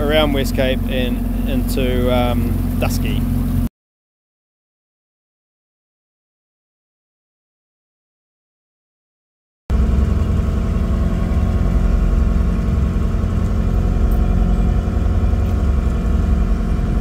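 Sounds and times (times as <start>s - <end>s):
boat engine droning: 0.0s - 3.7s, 9.7s - 17.0s.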